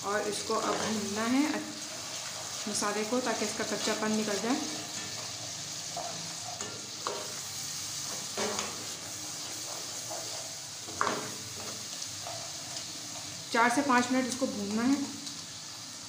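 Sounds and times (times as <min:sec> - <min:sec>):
masala sizzling in a pot: 0:00.0 - 0:16.0.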